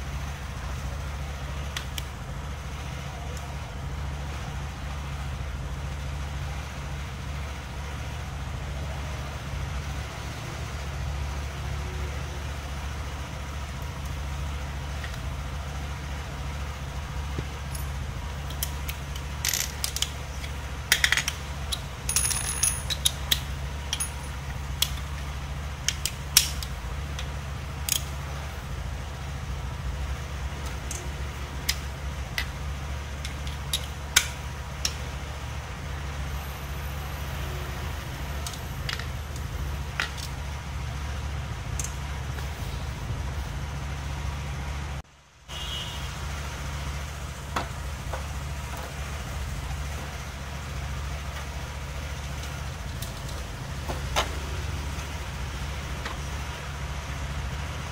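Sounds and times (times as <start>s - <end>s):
metal tools clinking: 17.6s - 25.1s.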